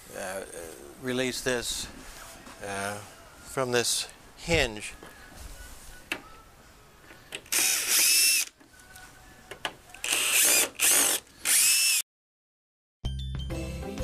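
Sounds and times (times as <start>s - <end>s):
cordless drill whining: 7.4s - 8.5s, 10.0s - 12.0s.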